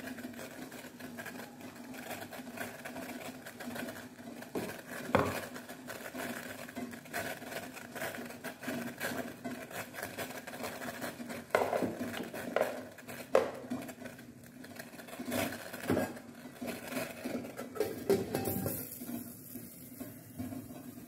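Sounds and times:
steel cookware clinking: 0:17.5 - 0:20.9.

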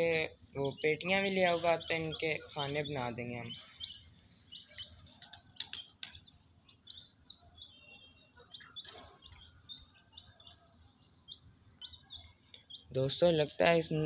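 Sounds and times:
small birds chirping: 0:00.0 - 0:14.0
sharp clicks: 0:04.8 - 0:06.2.

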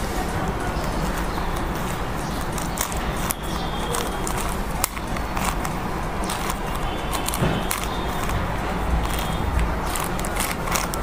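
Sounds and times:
rubik's cube clicking: 0:02.4 - 0:11.0.

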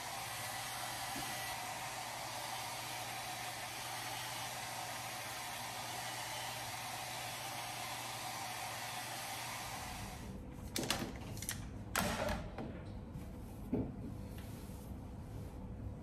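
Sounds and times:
hair dryer blowing: 0:00.0 - 0:10.4.

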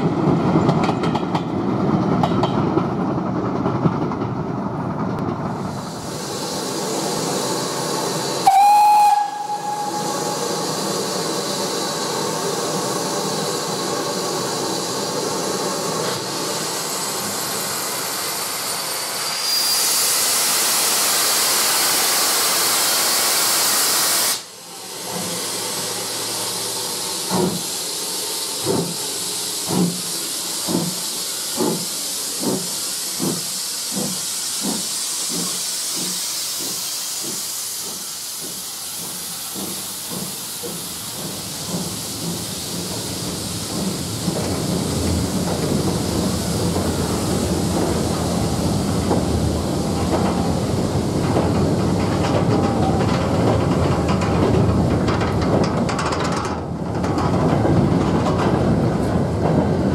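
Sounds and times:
steam locomotive exhaust chuffs: 0:05.4 - 0:59.9
steam hissing: 0:05.6 - 0:56.0
steam locomotive whistle: 0:08.4 - 0:10.6.

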